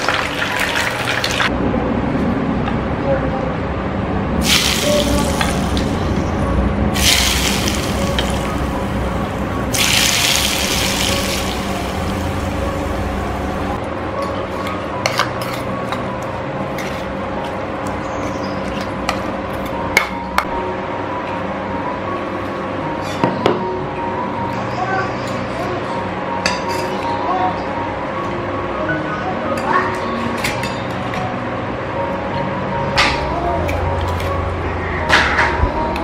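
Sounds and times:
hot oil sizzling: 4.4 - 6.3, 6.9 - 13.8.

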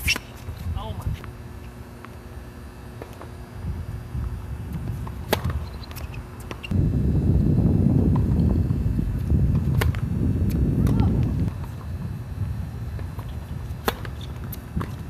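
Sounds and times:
tennis ball bouncing on court: 3.0 - 3.4, 4.7 - 6.8, 9.5 - 11.8, 13.0 - 15.0
wind buffeting microphone: 3.6 - 5.8, 6.7 - 15.0
racket striking ball: 4.7 - 6.8, 9.5 - 11.6, 13.0 - 15.0.

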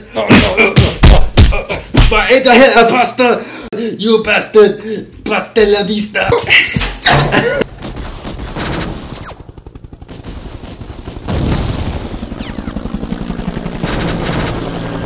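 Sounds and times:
machine-gun fire: 7.7 - 12.7, 13.8 - 14.8
helicopter rotor chop: 7.7 - 15.0.

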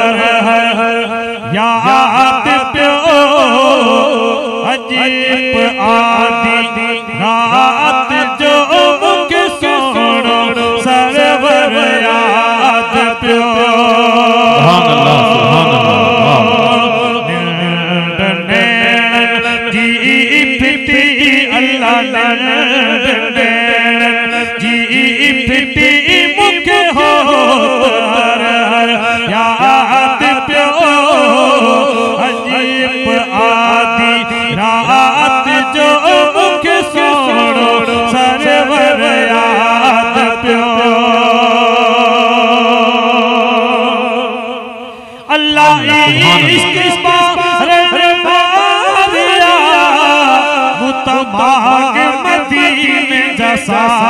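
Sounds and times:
men chanting held drone: 0.0 - 24.6, 45.3 - 54.0
man singing ornamented lines: 0.0 - 54.0.

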